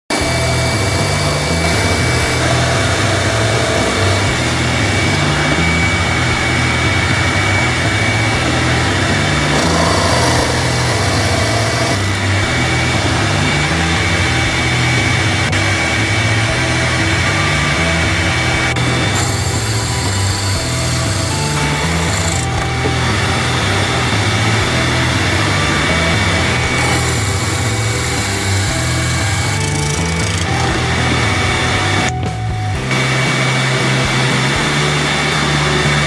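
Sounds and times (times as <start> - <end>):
shop vacuum running: 0.1 - 36.0
drill press sanding wood: 0.2 - 15.2, 18.7 - 32.0.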